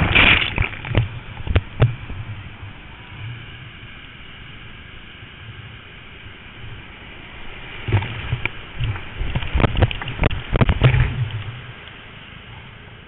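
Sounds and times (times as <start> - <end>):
waves splashing and thumping: 0.0 - 3.2, 6.4 - 12.8
fast water rushing: 0.0 - 13.0.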